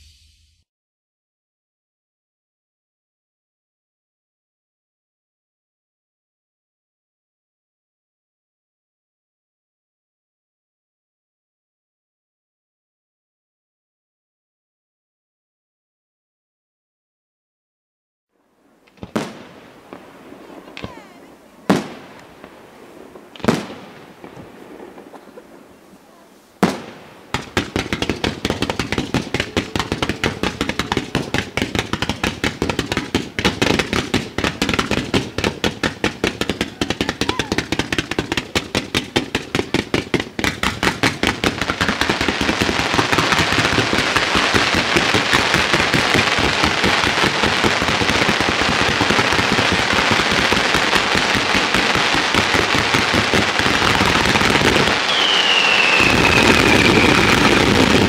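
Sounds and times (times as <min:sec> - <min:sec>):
firework crackle: 0:18.6 - 0:58.0
firework bangs: 0:18.8 - 0:58.0
falling firework whistle: 0:42.7 - 0:45.8, 0:53.9 - 0:58.0.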